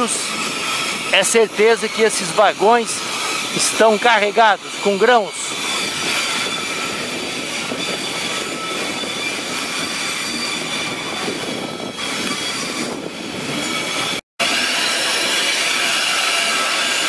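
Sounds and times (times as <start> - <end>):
train wheels rolling on rails: 0.0 - 4.8
wheels squealing on rails: 0.0 - 17.0.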